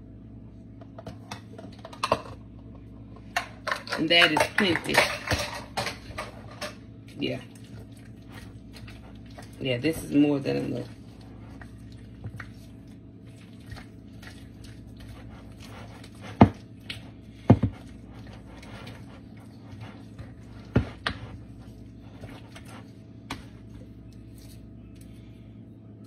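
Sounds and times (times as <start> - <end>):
faint steady hum: 0.0 - 26.0
spatula stirring thick mixture: 7.2 - 24.8.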